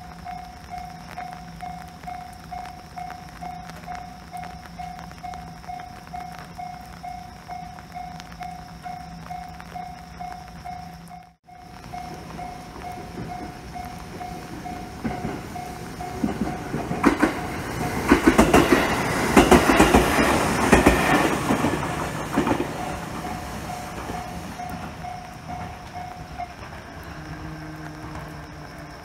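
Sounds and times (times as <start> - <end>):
train wheels clacking over rails: 11.9 - 28.4.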